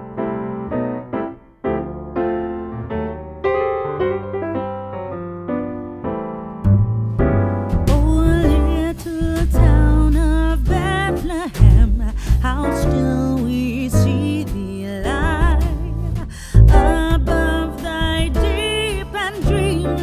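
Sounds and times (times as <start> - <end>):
electric piano chords: 0.0 - 20.0
bass and beat: 6.6 - 20.0
person singing melody: 7.9 - 20.0.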